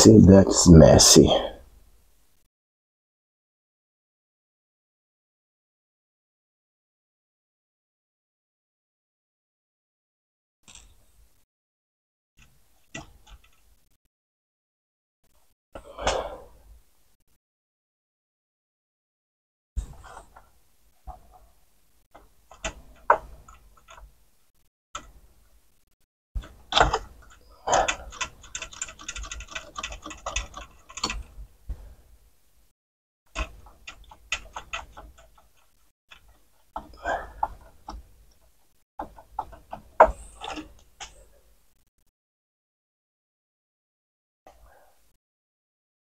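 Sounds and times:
plastic mechanism clicks and rattles: 26.4 - 31.4, 33.3 - 41.2.

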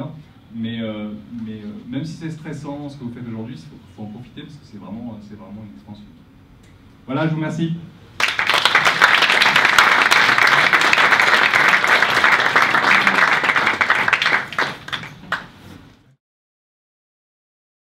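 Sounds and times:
audience applauding: 8.2 - 15.6.

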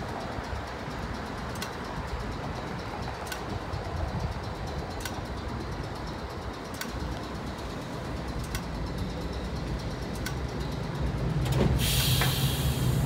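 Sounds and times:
tram and street rumble: 0.0 - 13.0
short sharp tick: 12.0 - 12.5.

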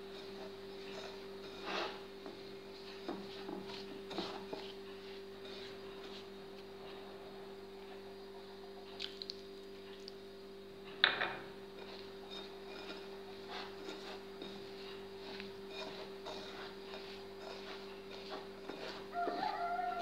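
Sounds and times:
steady low hum: 0.0 - 20.0
hands kneading damp semolina: 11.8 - 20.0.

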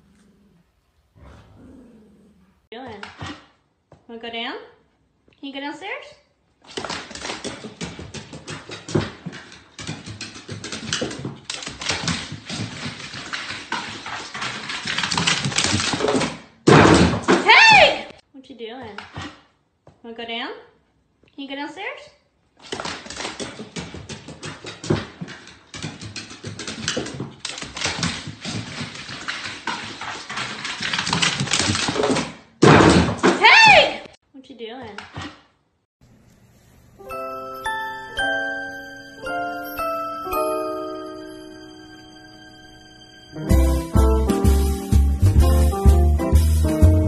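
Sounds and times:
dog paws tapping on wooden stairs: 6.8 - 16.3, 22.7 - 32.2.

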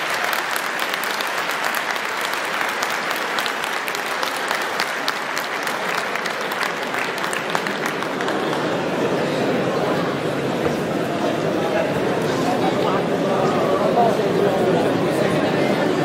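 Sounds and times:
crowd applauding: 0.0 - 10.3.

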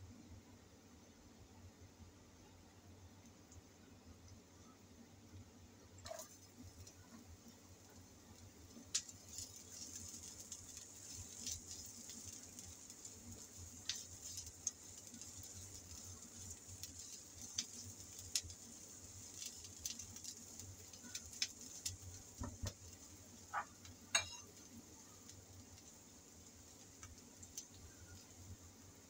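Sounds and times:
oil crackling and popping: 6.0 - 29.0
onion sizzling in oil: 6.0 - 29.0.

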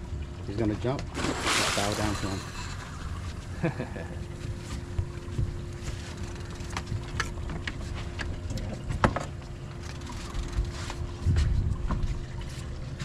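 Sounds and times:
low hum: 0.0 - 13.0
water moving around boat: 0.0 - 13.0
sharp knocks or splashes: 1.0 - 2.3
wind on microphone: 10.4 - 13.0.

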